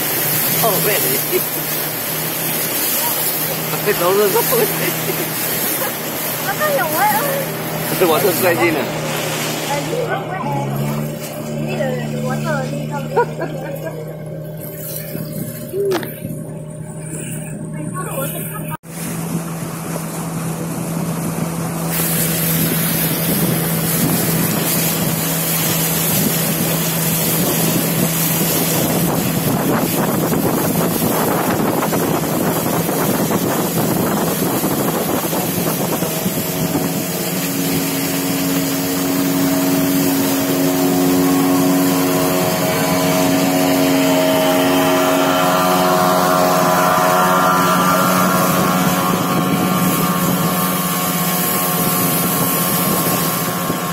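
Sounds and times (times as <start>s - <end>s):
outboard motor running: 0.0s - 53.9s
passing boat outboard engine: 0.0s - 53.9s
water rushing past: 0.0s - 53.9s
wind rushing: 26.1s - 53.9s.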